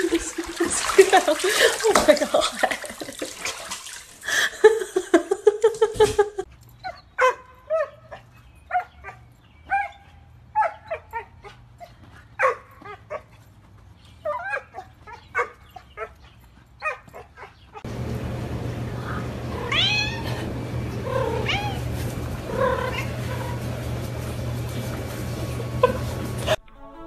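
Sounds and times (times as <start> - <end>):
dog barking and yipping: 6.8 - 13.4, 14.2 - 17.9.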